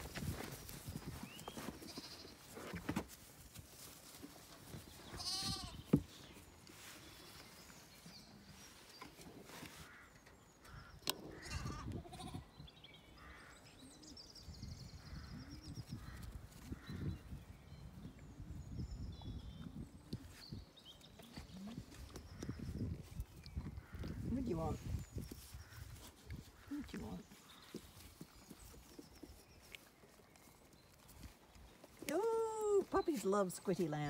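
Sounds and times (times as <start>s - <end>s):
rustling and handling noise: 0.0s - 10.1s
lambs bleating: 5.2s - 5.8s, 11.3s - 12.5s.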